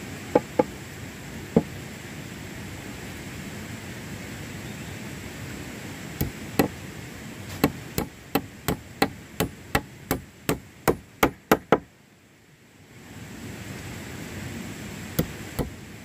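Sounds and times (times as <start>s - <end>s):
hand tool striking wood: 0.3s - 0.7s, 6.2s - 6.8s, 7.5s - 11.8s, 15.2s - 15.8s.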